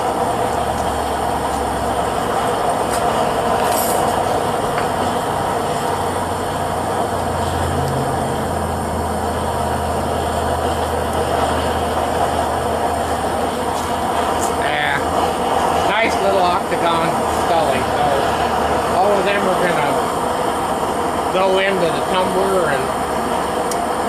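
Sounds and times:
furnace burner roaring: 0.0 - 24.0
low hum: 0.0 - 24.0.

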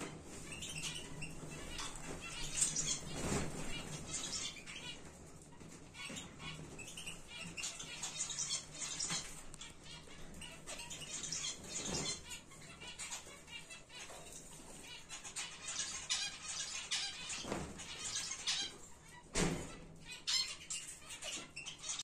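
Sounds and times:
birds fluttering wings: 0.3 - 4.5.

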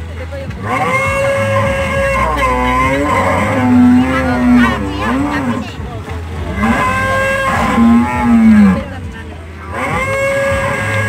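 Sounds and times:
low steady hum: 0.0 - 11.0
wavering vocal calls: 0.6 - 5.8, 6.5 - 8.9.

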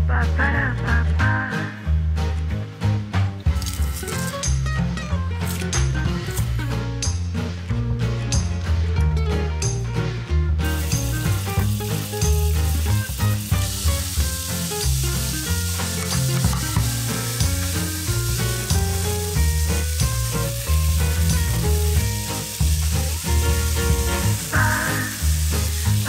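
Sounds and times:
background music: 0.0 - 26.0
garlic sizzling in oil: 3.5 - 4.6, 10.6 - 26.0.

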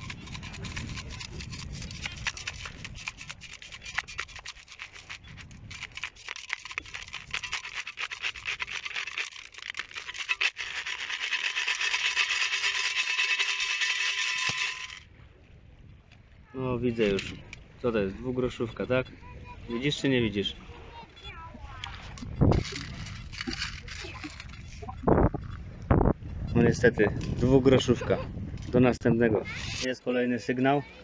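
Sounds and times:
sand rasping in metal sieve: 0.0 - 15.0, 29.5 - 30.0.

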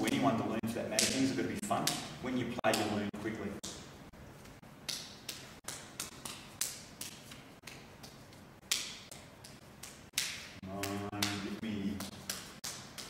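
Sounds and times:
hands and forearms slapping: 1.0 - 13.0.

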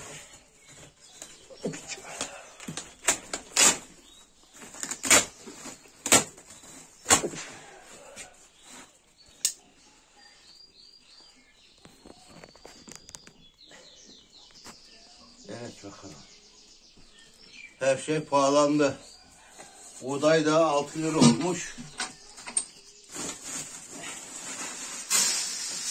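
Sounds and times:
plastic sack rustling and crinkling: 0.0 - 9.3, 20.8 - 25.9.

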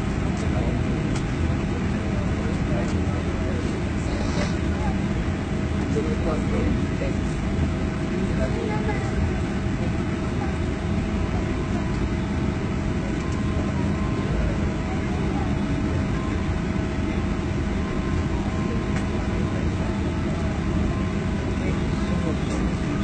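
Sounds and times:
aircraft engine drone: 0.0 - 23.0
constant whine: 0.0 - 23.0.

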